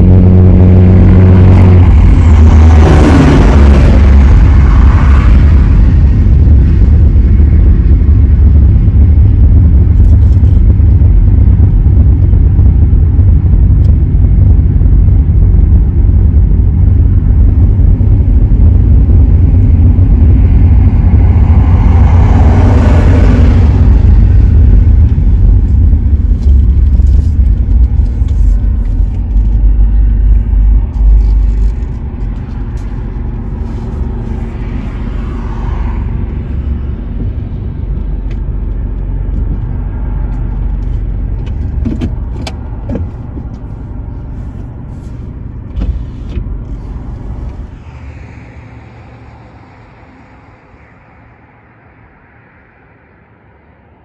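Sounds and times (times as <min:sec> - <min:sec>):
rushing swell: 0:00.0 - 0:09.9, 0:47.0 - 0:53.1
car road and engine rumble: 0:00.0 - 0:54.0.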